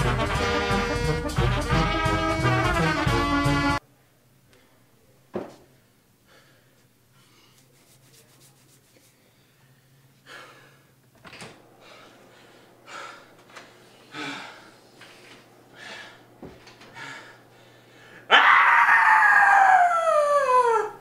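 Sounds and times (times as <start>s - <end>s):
low steady hum: 3.8s - 18.3s
breaths: 5.8s - 7.7s, 9.1s - 11.0s, 11.8s - 18.3s
soft rustles: 6.8s - 9.3s.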